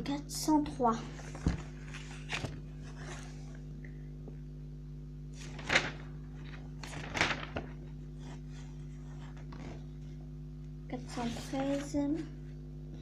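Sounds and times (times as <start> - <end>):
steady low hum: 0.0 - 13.0
pages of sticker album rustling: 1.0 - 3.6, 5.4 - 10.2, 10.9 - 12.3.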